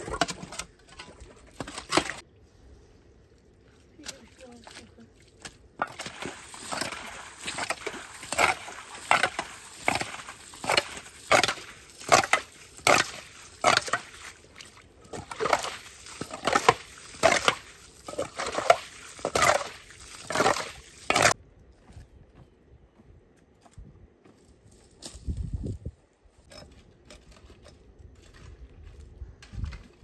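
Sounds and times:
metal lid scooping splashing water: 5.8s - 21.4s.

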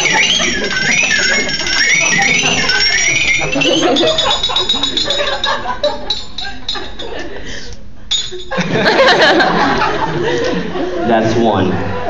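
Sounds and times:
high warbling tone: 0.0s - 7.0s.

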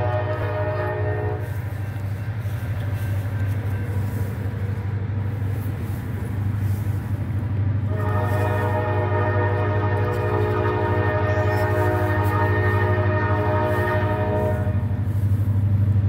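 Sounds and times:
locomotive horn blasts: 0.0s - 5.0s, 7.8s - 15.4s
diesel locomotive rumbling: 0.0s - 16.0s.

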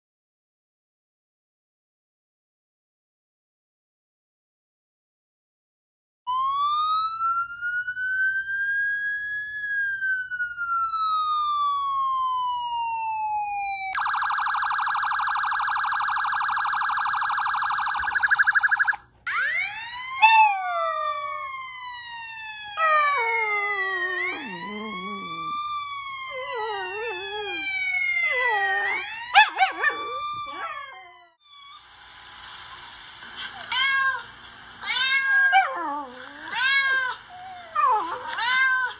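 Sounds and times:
police siren wailing and yelping: 6.3s - 31.9s, 34.8s - 38.9s
puppy howling: 19.3s - 21.7s, 22.6s - 31.4s, 35.0s - 38.9s
cats meowing from a phone: 34.8s - 37.2s, 38.3s - 38.9s.

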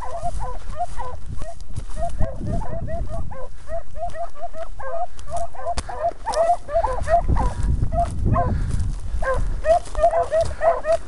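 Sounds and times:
hounds barking: 0.0s - 11.0s.

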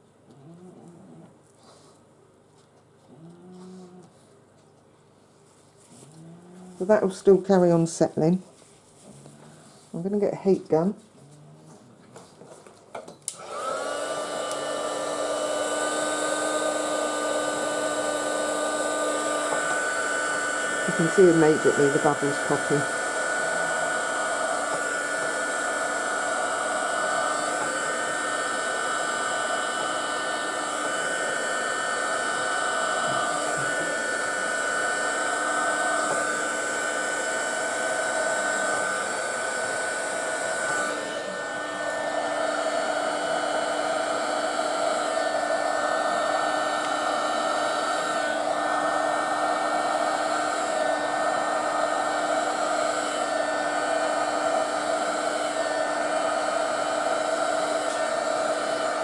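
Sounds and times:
heat gun fan whirring: 12.9s - 59.0s.

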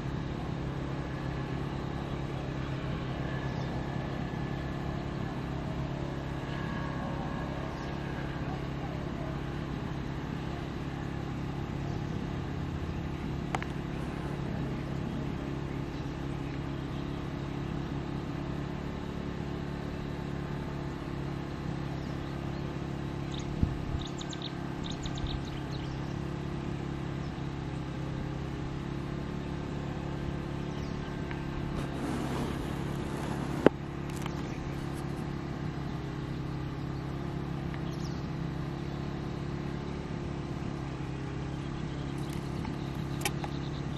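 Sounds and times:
motor humming: 0.0s - 18.6s, 30.5s - 39.6s, 40.4s - 43.9s
sharp clicks: 42.2s - 43.6s.

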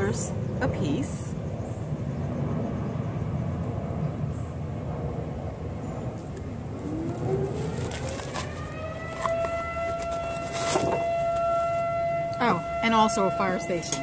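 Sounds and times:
siren winding up: 6.7s - 14.0s.

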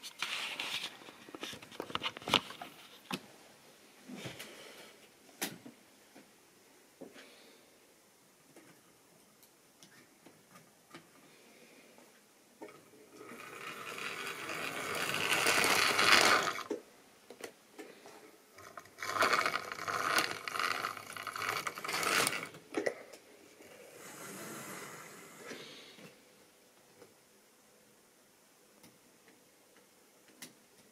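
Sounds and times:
model train motor whirring: 13.2s - 16.8s, 18.6s - 22.6s.

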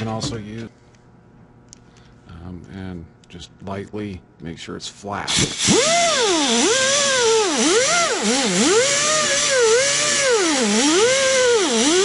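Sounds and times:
air grinder whining: 5.3s - 12.0s.

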